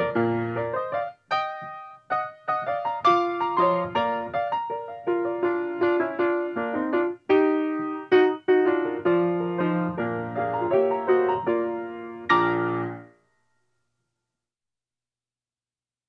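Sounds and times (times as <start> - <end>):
piano melody: 0.0 - 13.2.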